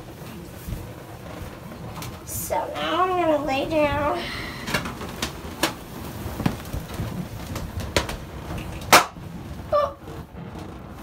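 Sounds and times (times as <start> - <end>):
balloons bumping softly: 3.1 - 11.0
balloons squeaking: 4.5 - 11.0.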